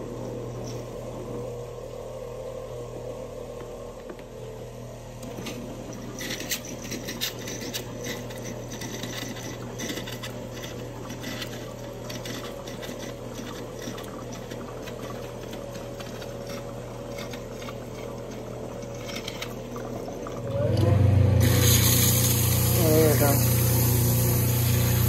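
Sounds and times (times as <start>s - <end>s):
electric water pump hum: 0.0s - 25.0s
water spraying into basin: 21.4s - 25.0s.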